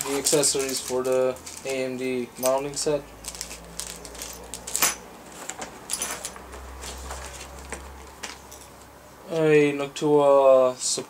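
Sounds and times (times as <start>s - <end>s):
small metal parts clinking: 0.0s - 7.2s, 8.2s - 8.8s
plastic bags crinkling: 0.0s - 8.5s.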